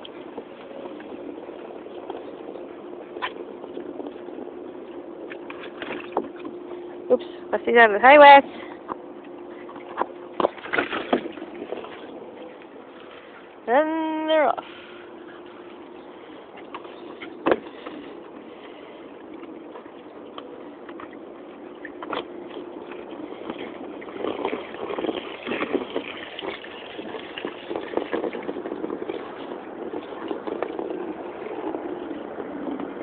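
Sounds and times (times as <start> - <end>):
faint steady hum: 0.0 - 33.0
water splashing in a paddling pool: 0.0 - 33.0
hose pouring water: 24.0 - 30.8.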